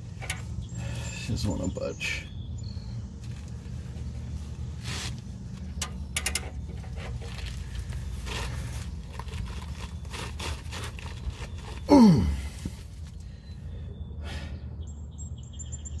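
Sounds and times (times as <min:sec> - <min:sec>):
ratchet clicks and scrapes: 0:04.8 - 0:11.4.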